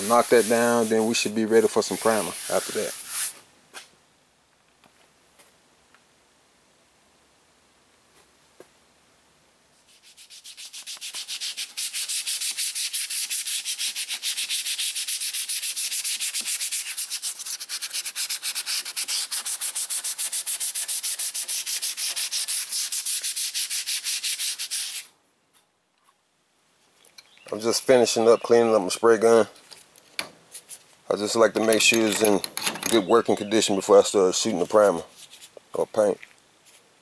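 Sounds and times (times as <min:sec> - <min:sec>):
sandpaper scratching on filler: 0:00.0 - 0:03.4, 0:09.8 - 0:25.1.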